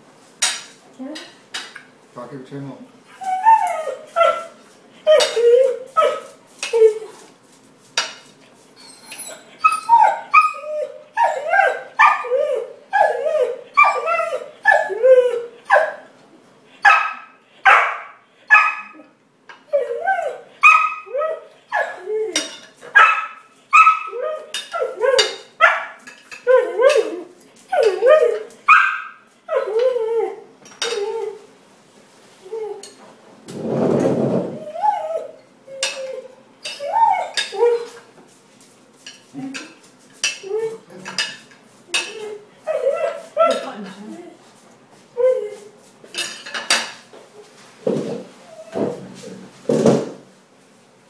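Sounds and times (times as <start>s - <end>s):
dog barking and yelping: 3.2s - 7.2s, 9.0s - 16.0s, 16.8s - 19.1s, 19.7s - 31.4s, 34.6s - 38.0s, 42.0s - 43.7s.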